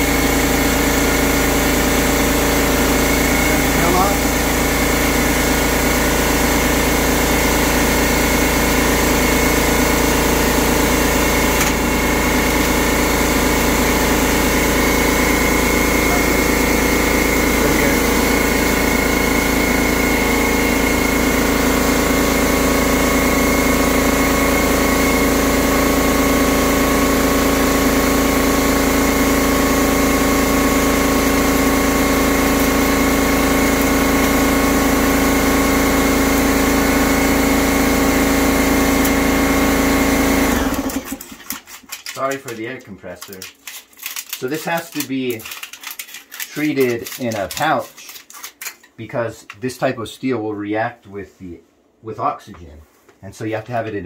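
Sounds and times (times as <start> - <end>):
air compressor running: 0.0 - 42.6.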